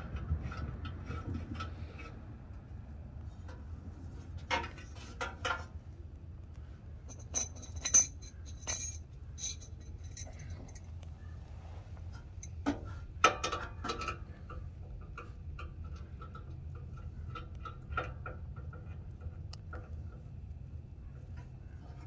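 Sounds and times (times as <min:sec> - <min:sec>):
metallic knocks and clinks: 0:07.1 - 0:10.9.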